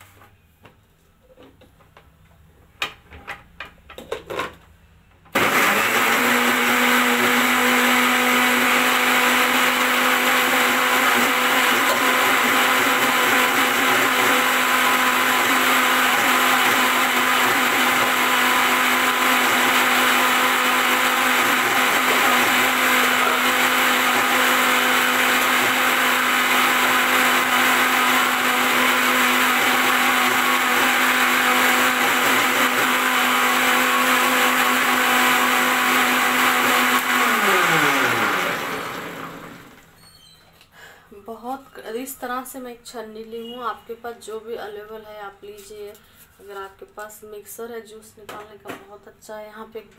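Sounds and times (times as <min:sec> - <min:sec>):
mixer grinder humming: 0:05.3 - 0:39.9.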